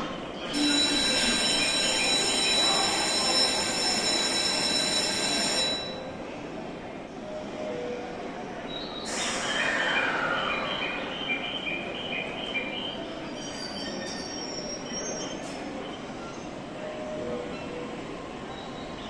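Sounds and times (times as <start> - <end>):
train brakes squealing: 0.1 - 3.6, 8.8 - 11.9, 12.8 - 16.4.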